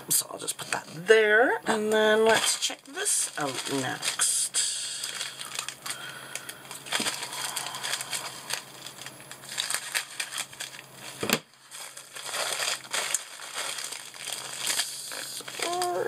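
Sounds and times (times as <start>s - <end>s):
plastic mailer crinkling: 1.8s - 16.0s
scissors cutting plastic: 9.4s - 16.0s.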